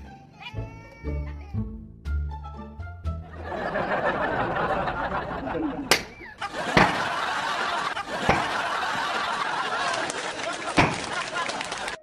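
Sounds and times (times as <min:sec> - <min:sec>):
girls giggling and laughing: 0:03.4 - 0:11.9
sharp smacks: 0:05.9 - 0:07.1, 0:08.2 - 0:08.6, 0:10.7 - 0:11.2.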